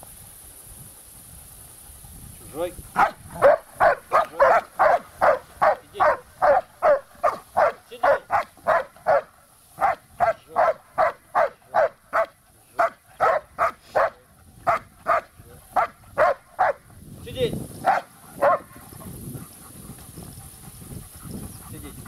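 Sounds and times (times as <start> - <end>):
dog barking rapidly: 3.0 - 16.9, 17.8 - 18.8.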